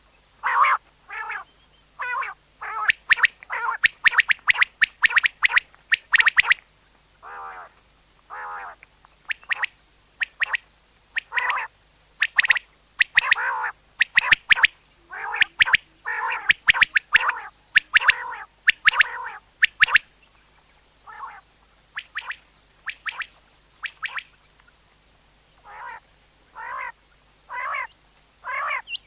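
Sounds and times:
quail calling: 0.4s - 6.6s, 7.2s - 7.7s, 8.3s - 10.6s, 11.2s - 20.1s, 21.0s - 21.4s, 25.6s - 29.0s.

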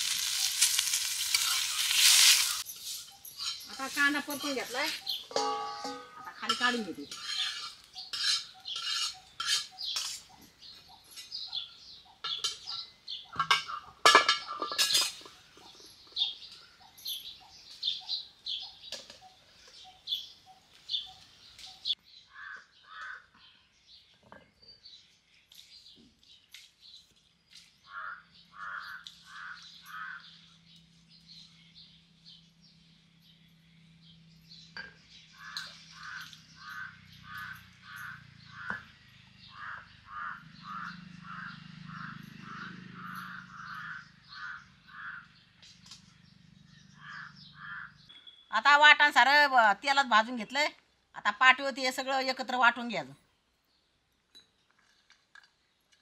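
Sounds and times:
metal spatula scraping griddle: 0.0s - 10.3s, 13.4s - 15.3s
crows cawing: 22.3s - 23.4s, 27.8s - 30.4s, 35.4s - 45.4s, 47.0s - 48.1s.

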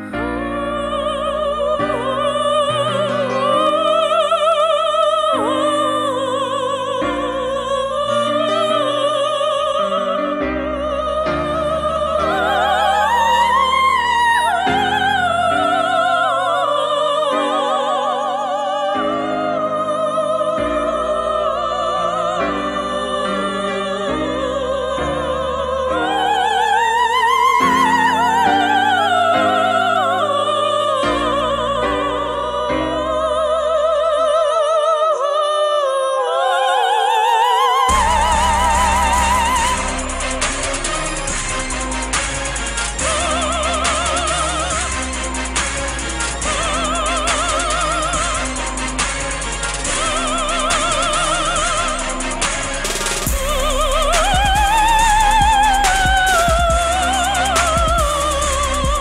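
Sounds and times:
woman singing operatically: 0.0s - 48.9s, 49.8s - 59.0s
sustained accompaniment chords: 37.8s - 59.0s.

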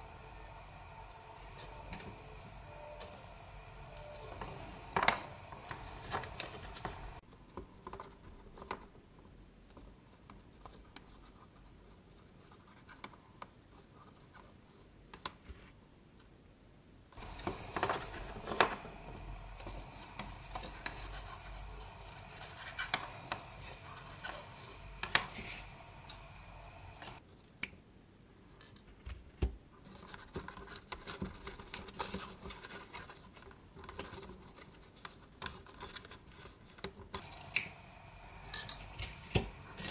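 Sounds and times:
wire scratching on cardboard: 17.2s - 26.2s.

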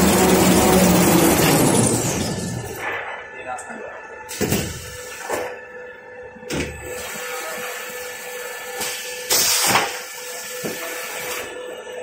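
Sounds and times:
machine mechanical drone: 0.0s - 9.5s.

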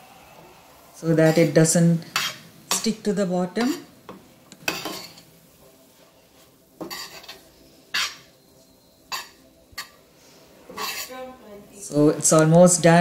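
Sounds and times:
spoon scraping and clinking pan: 4.7s - 5.2s, 6.8s - 8.3s, 10.8s - 11.1s.

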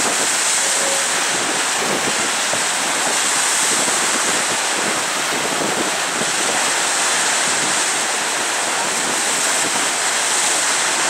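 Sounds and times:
wind rushing: 0.0s - 6.4s
sea water hissing: 0.0s - 9.3s.

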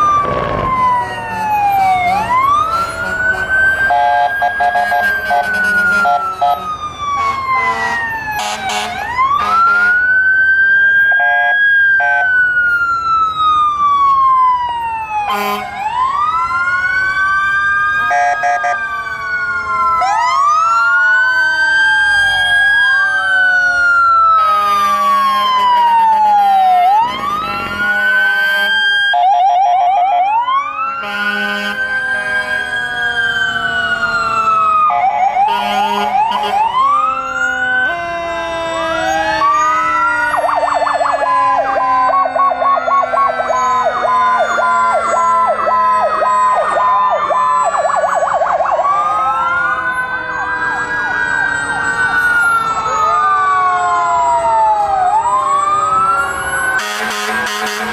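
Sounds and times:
siren yelp: 0.0s - 57.9s
sirens wailing: 0.0s - 57.9s
horn blasts: 2.1s - 6.6s, 7.2s - 10.0s, 15.3s - 15.7s, 31.0s - 32.7s, 35.5s - 36.7s, 56.8s - 57.9s.

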